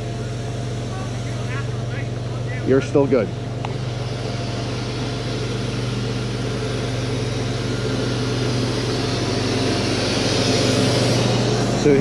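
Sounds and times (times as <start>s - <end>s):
engine humming steadily: 0.0s - 12.0s.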